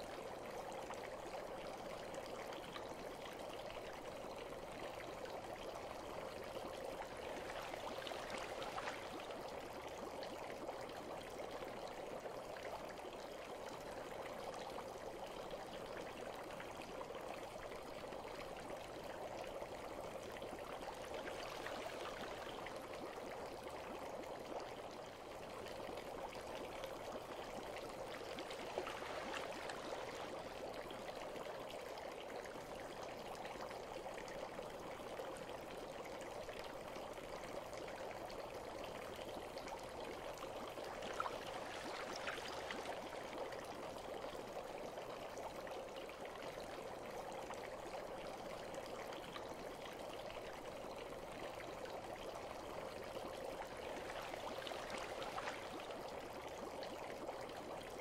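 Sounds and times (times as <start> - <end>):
bath water trickling and lapping: 2.3 - 12.4, 19.7 - 35.2, 37.6 - 45.6, 51.2 - 58.0.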